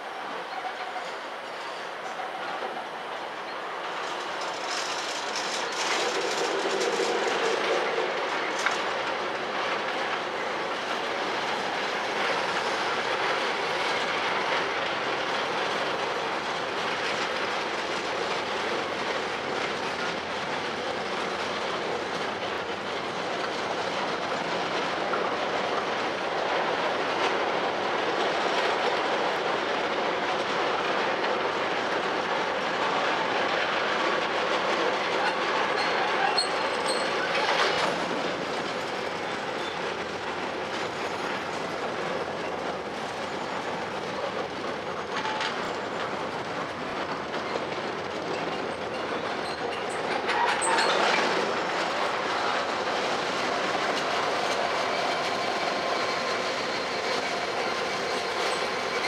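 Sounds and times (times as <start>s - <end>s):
freight train rumbling past: 0.0s - 59.0s
wheels clattering over rail joints: 3.8s - 10.3s, 34.2s - 59.0s.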